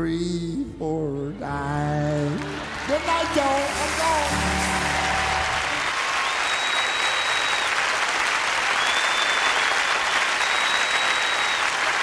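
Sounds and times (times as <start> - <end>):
audience applauding: 1.6 - 12.0
high whistles: 6.2 - 7.8, 8.7 - 11.8.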